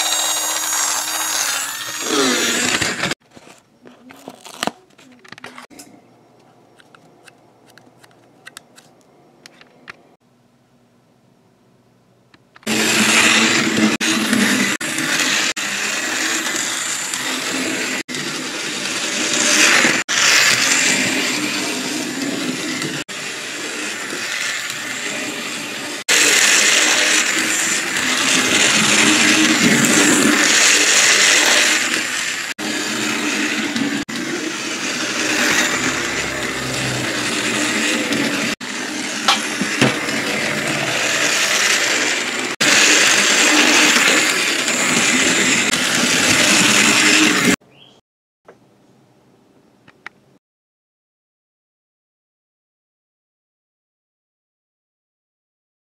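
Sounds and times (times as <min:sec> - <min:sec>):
wheels rattling on toy track: 0:00.0 - 0:03.1, 0:12.6 - 0:47.6
toy train motor whirring: 0:00.0 - 0:05.7, 0:12.6 - 0:47.6.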